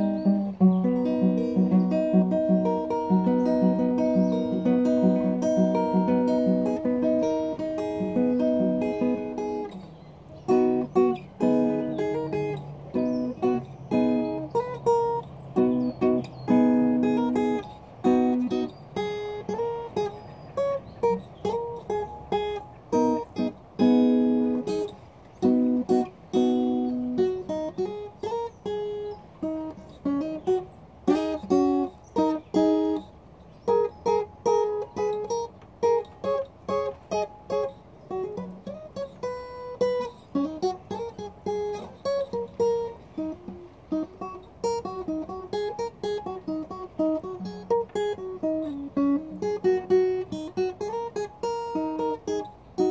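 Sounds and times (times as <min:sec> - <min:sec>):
acoustic guitar playing: 0:00.0 - 0:52.9.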